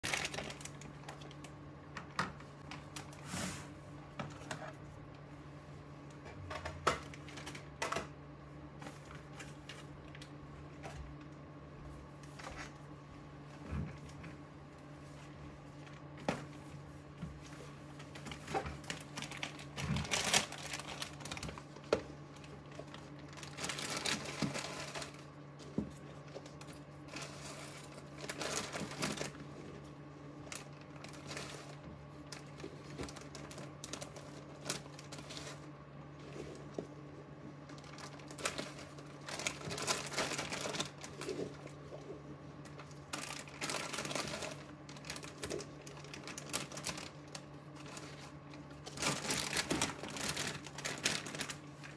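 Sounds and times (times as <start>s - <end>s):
plastic bag crinkling: 0.0s - 1.6s, 17.5s - 36.8s, 37.6s - 51.9s.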